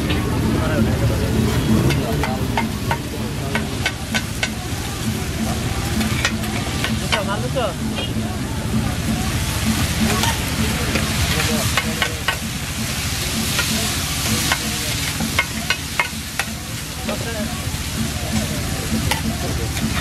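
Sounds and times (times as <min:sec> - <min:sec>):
meat sizzling on griddle: 0:09.1 - 0:20.0.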